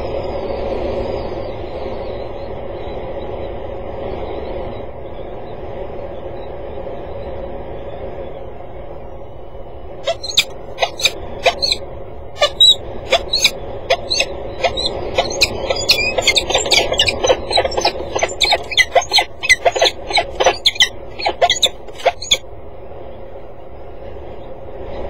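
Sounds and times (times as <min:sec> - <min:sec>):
background hum: 0:00.0 - 0:25.0
falcons squealing calls: 0:10.1 - 0:11.8, 0:12.4 - 0:22.4.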